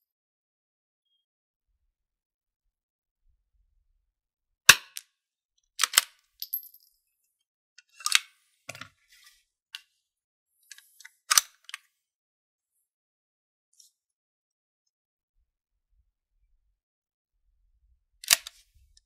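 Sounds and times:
rifle bolt clicking and clacking: 5.8 - 6.2, 18.2 - 18.6.

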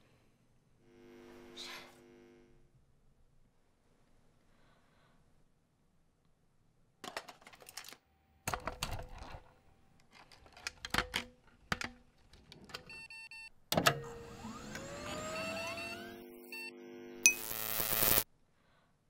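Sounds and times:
hand tool clicks and rattles: 10.0 - 12.8
rising electronic tones: 14.2 - 18.2
electronic beeps: 14.9 - 18.2.

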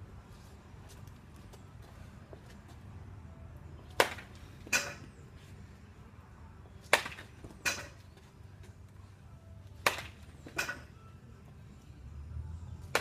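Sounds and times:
wooden bat cracking baseballs: 3.8 - 5.2, 6.8 - 8.8, 9.7 - 11.0, 12.8 - 13.0.

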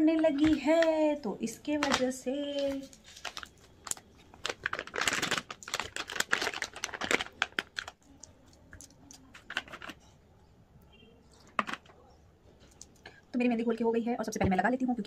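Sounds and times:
plastic packet crinkling: 0.2 - 10.1.

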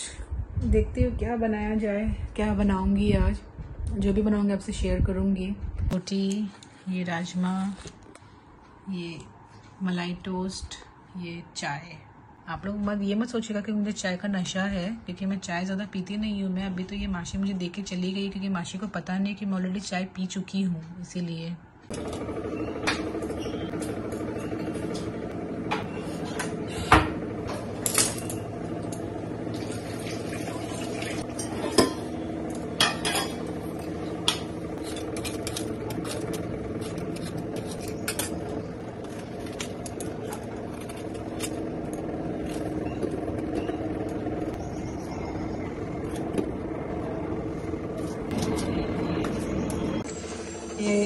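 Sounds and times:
steady low hum: 20.4 - 51.0
utensils and dishes clinking: 25.7 - 44.3.

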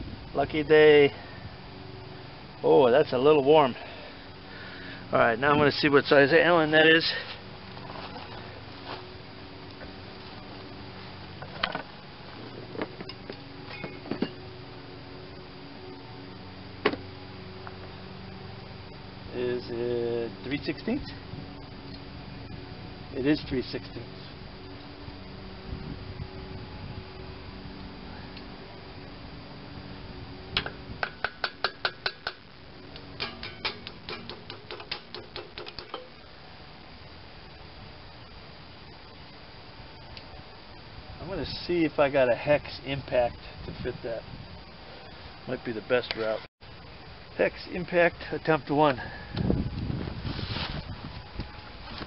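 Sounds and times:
faint steady hum: 0.0 - 52.0
small hammer tapping metal: 30.6 - 32.4, 33.2 - 36.1.

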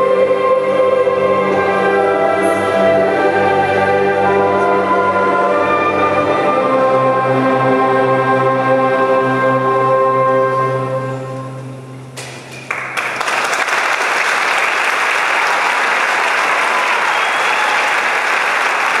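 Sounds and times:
orchestra chord: 0.0 - 12.2
audience applause: 12.6 - 19.0.

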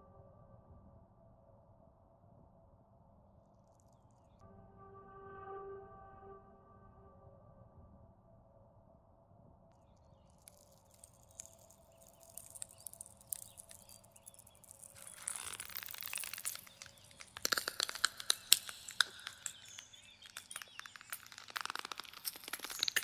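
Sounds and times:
wood and twigs cracking: 10.1 - 23.0.

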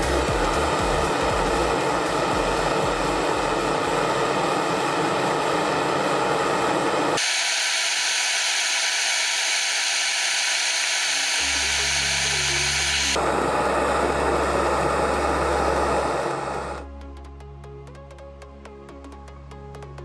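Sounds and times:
low steady hum: 0.0 - 7.1
blowtorch flame hissing: 0.0 - 16.9.

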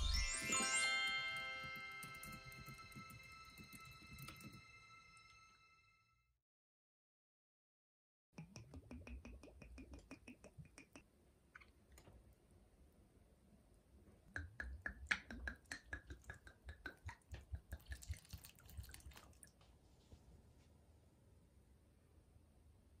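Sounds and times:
water glugging into soil: 17.1 - 19.6.

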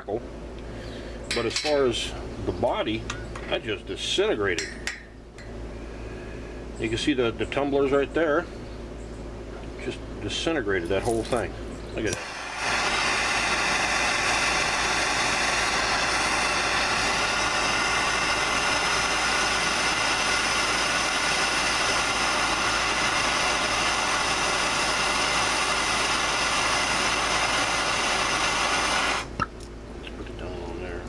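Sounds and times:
gas torch flame hissing: 11.1 - 29.5.

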